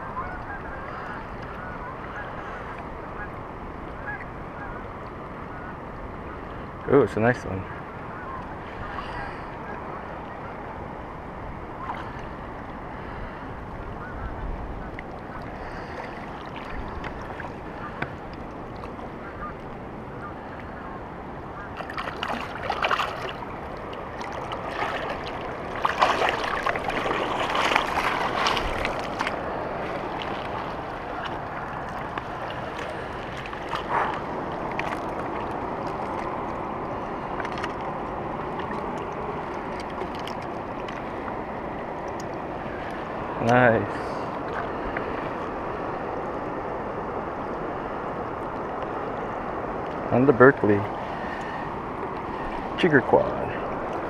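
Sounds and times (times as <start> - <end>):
water lapping on rocks: 21.7 - 45.6
fish splashing and clattering: 21.8 - 29.4.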